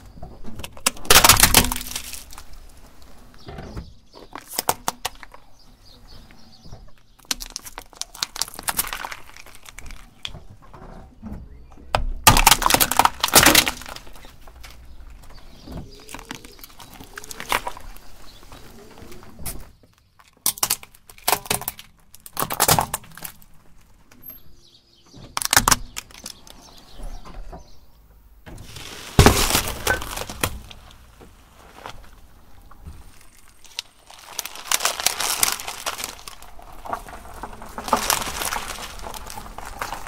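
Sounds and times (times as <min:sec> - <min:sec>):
plastic cracking under tyre: 0:00.0 - 0:05.7, 0:06.3 - 0:24.2, 0:25.1 - 0:27.0, 0:28.6 - 0:40.0
watermelon crushed by tyre: 0:00.4 - 0:03.1, 0:07.1 - 0:10.9, 0:11.5 - 0:23.7, 0:28.5 - 0:40.0.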